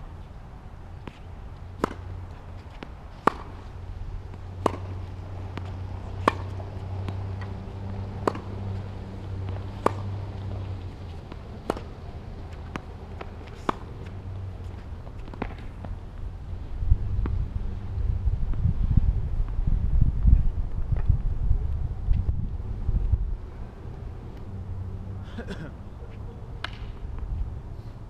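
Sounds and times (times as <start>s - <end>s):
steady low rumble: 0.0s - 28.0s
tennis balls struck by rackets: 0.9s - 16.3s, 17.0s - 17.8s, 26.6s - 27.3s
tennis balls bouncing on court: 0.9s - 16.4s, 17.0s - 18.6s, 26.1s - 27.3s.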